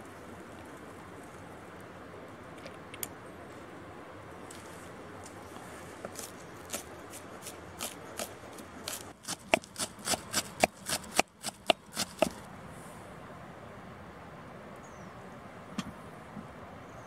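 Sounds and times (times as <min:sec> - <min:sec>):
knife chopping herbs on wood: 0:06.0 - 0:12.4.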